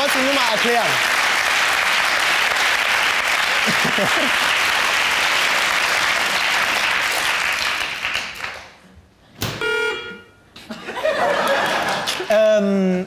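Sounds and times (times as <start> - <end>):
audience applauding: 0.0 - 8.8
horn-like toot: 9.6 - 10.4.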